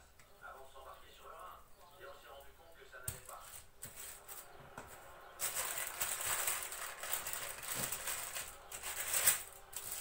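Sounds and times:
paper rustling and crinkling: 0:03.1 - 0:10.0.

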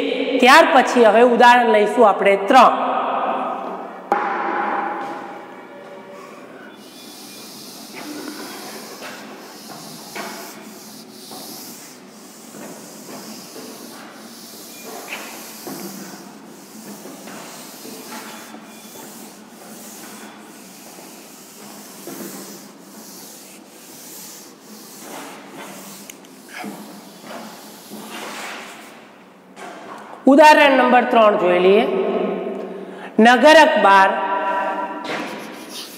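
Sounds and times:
duster rubbing on chalkboard: 0:06.2 - 0:29.2, 0:35.1 - 0:35.9.

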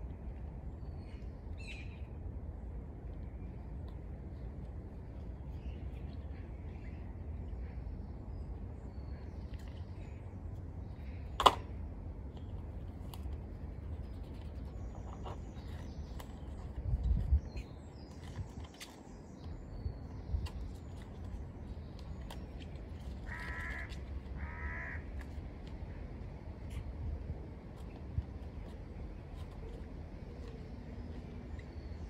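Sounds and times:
steady low rumble: 0:00.0 - 0:32.0.

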